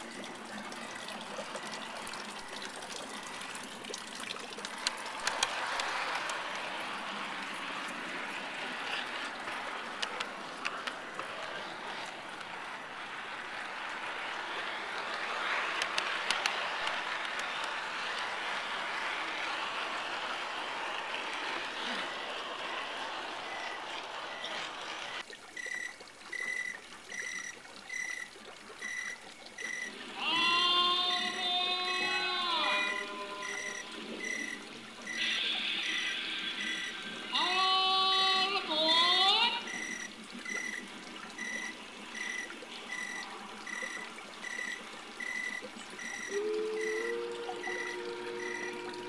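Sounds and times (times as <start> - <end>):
trickling water: 0.0 - 49.0
hiss: 35.1 - 37.3.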